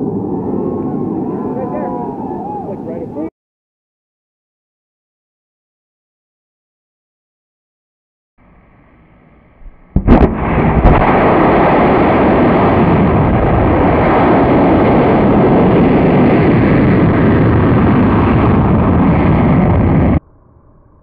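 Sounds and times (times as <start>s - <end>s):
rocket motor firing: 9.6s - 15.2s
rocket motor igniting crack: 9.6s - 20.2s.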